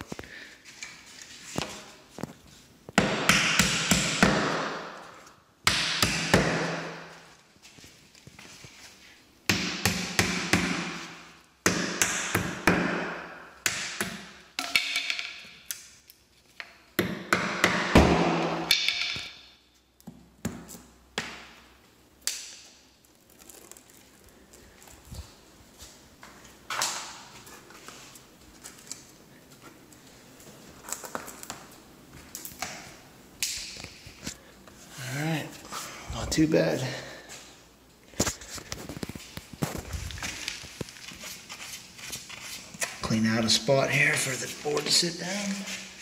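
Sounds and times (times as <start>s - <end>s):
hammer striking nails: 3.0s - 4.9s, 5.7s - 7.0s, 9.5s - 11.0s, 11.6s - 15.5s, 17.0s - 19.4s.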